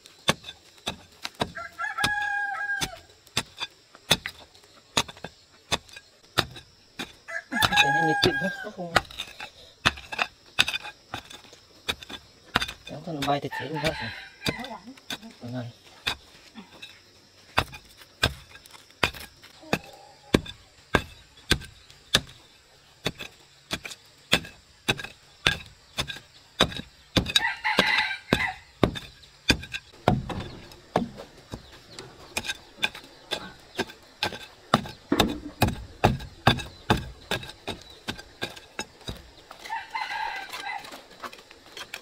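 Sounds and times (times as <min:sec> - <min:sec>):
rooster crowing: 0:01.5 - 0:03.1, 0:07.3 - 0:08.9, 0:13.5 - 0:14.8, 0:27.3 - 0:28.7, 0:39.6 - 0:41.0
sharp chopping strikes: 0:34.2 - 0:39.2.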